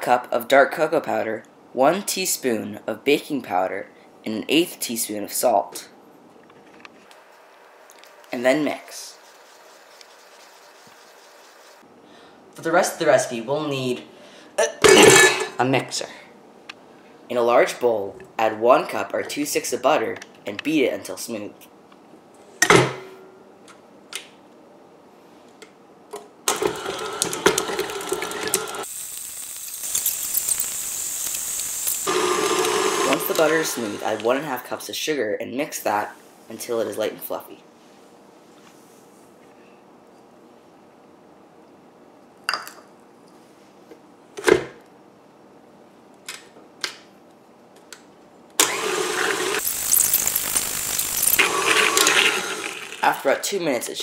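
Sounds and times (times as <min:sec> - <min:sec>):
stand mixer beating butter: 0:26.5 - 0:28.8, 0:32.1 - 0:34.3, 0:48.6 - 0:49.6, 0:51.4 - 0:53.0.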